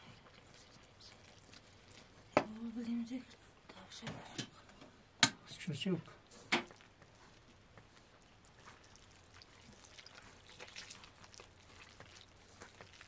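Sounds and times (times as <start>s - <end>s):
dough being kneaded in a bowl: 0.0s - 3.4s, 6.4s - 13.0s.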